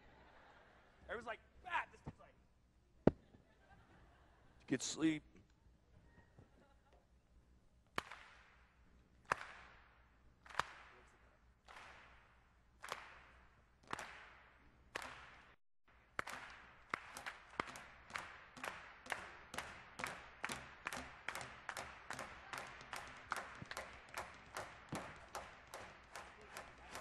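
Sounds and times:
rubber balls bouncing rhythmically: 17.6 - 27.0.

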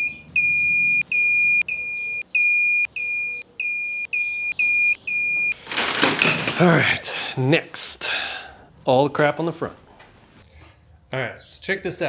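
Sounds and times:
torque wrench beeping: 0.0 - 5.6.

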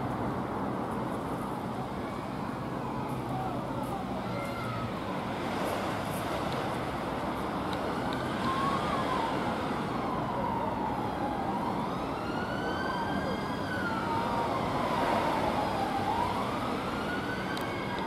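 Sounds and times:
road traffic hiss: 0.0 - 18.0
emergency siren wailing: 1.4 - 4.4, 7.4 - 18.0.

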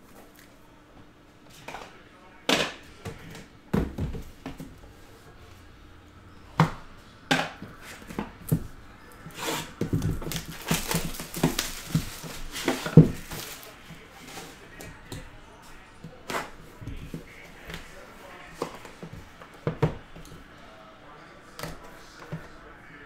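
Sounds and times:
cellophane crinkling and tearing: 10.2 - 13.8.

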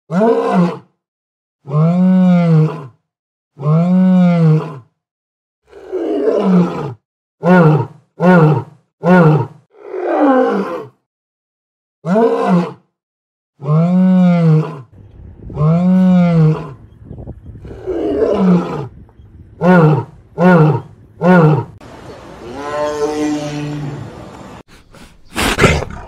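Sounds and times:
lion roaring: 5.7 - 10.9, 13.6 - 14.9, 15.5 - 16.9, 17.6 - 19.0, 19.6 - 21.8, 25.3 - 26.0
lion grunting roars: 15.5 - 16.9, 17.5 - 19.0, 19.6 - 21.8, 25.2 - 26.0.

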